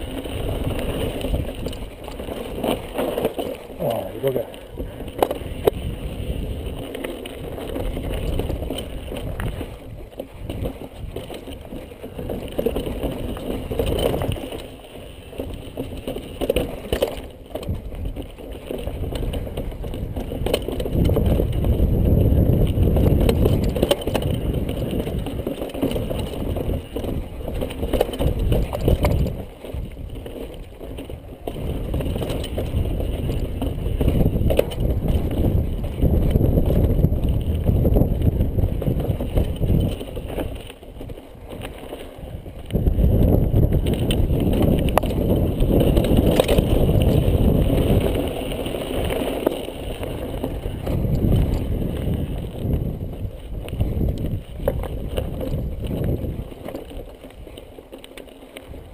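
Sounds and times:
wind buffeting microphone: 0.0s - 57.8s
bike rattles and knocks: 0.0s - 58.9s
bike tyres rumbling over gravel: 0.0s - 58.9s.

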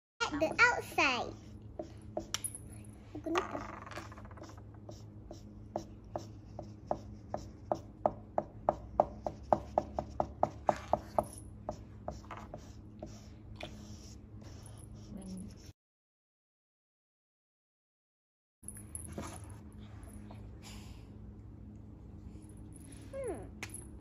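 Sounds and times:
markers scribbling on tissue paper: 4.1s - 8.0s, 8.7s - 15.7s.

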